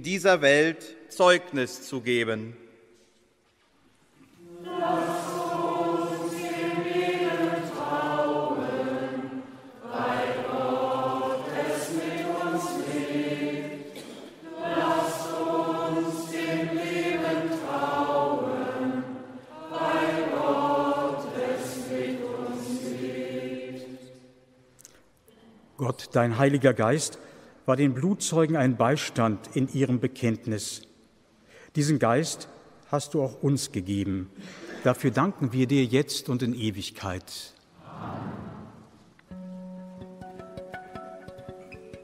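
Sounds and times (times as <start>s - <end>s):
choir singing: 4.3s - 24.6s.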